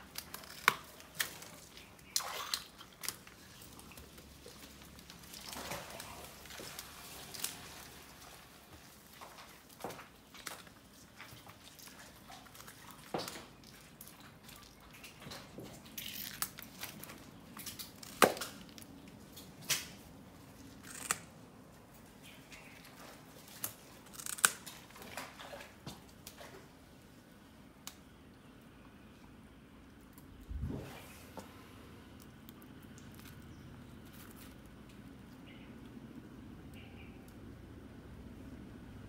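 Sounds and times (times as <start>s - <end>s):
crocodiles crunching snail shells: 0.0s - 8.0s, 15.7s - 19.8s, 20.6s - 21.3s, 23.5s - 24.9s.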